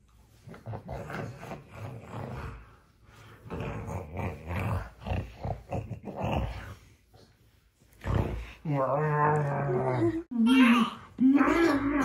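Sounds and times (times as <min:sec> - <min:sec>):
man making low growling noises: 0:03.5 - 0:06.8, 0:08.1 - 0:10.3.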